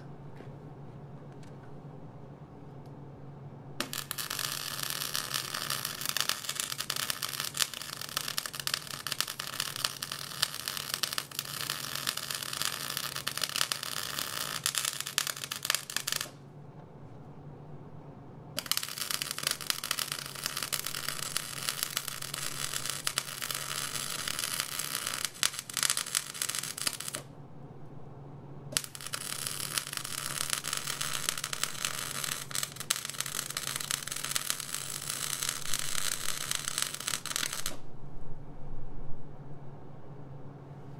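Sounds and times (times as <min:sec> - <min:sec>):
low steady hum: 0:00.0 - 0:40.9
arc welding crackle: 0:03.8 - 0:16.4, 0:18.6 - 0:27.3, 0:28.7 - 0:37.9.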